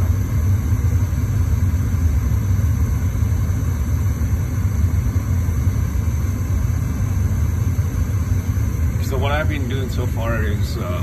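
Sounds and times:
gas furnace rumbling: 0.0 - 11.0.

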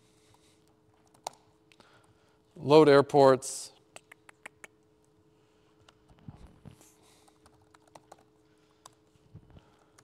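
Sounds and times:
faint steady hum: 0.0 - 10.0
typing on computer keyboard: 1.0 - 1.4, 7.2 - 9.0.

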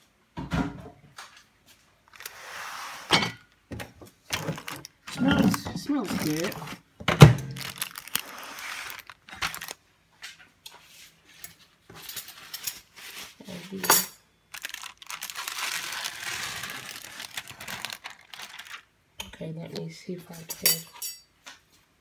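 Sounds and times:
plastic film crinkling: 2.0 - 2.6, 4.2 - 9.8, 14.5 - 19.0.

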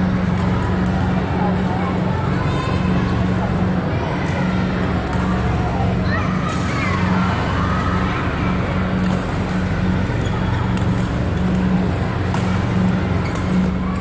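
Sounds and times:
rackets striking shuttlecock: 12.2 - 13.8.

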